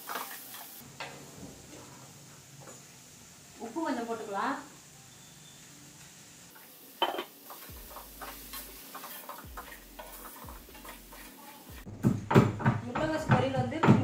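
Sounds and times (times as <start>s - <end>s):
cabbage sizzling: 0.0s - 11.9s
spatula scraping in a metal pan: 7.5s - 11.9s.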